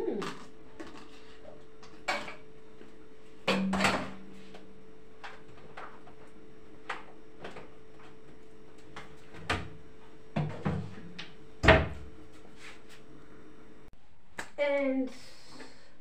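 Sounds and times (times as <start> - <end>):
faint hum: 0.0 - 16.0
kitchen knocks and clunks: 3.4 - 4.3, 9.0 - 12.1.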